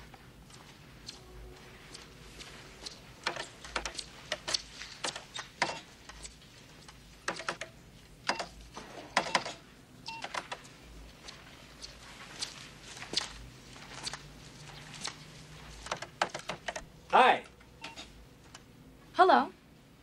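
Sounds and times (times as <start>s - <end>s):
computer keyboard typing: 1.9s - 7.7s, 9.2s - 10.7s, 14.8s - 16.9s.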